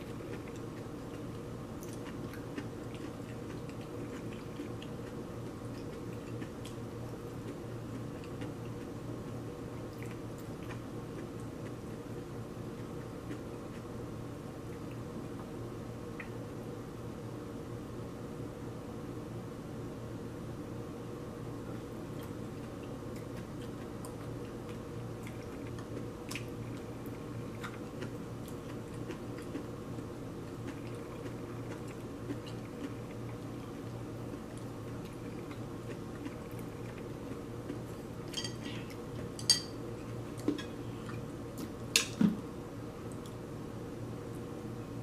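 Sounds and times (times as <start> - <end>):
steady low hum: 0.0 - 45.0
utensils clinking on plates: 38.3 - 38.7, 39.4 - 39.8.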